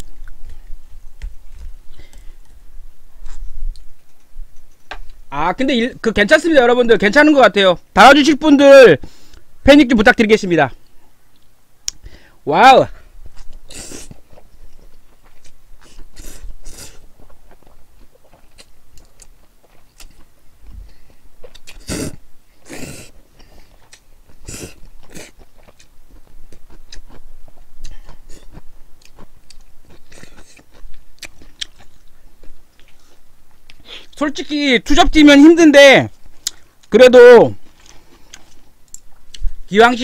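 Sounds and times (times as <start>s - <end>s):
wet chewing with mouth clicks: 13.3s - 34.2s, 36.2s - 36.9s, 37.6s - 39.6s.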